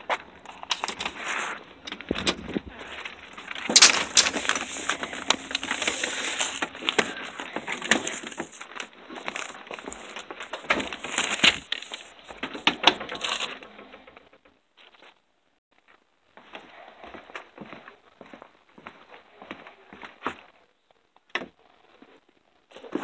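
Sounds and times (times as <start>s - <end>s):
phone rubbing against clothing: 4.1s - 8.5s.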